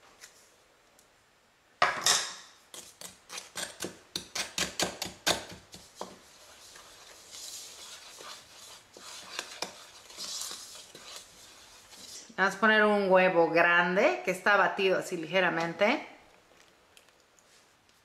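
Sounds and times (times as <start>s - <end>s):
wooden spoon stirring in plastic bowl: 2.7s - 12.6s
gritty rustle of dry mix: 5.8s - 12.3s.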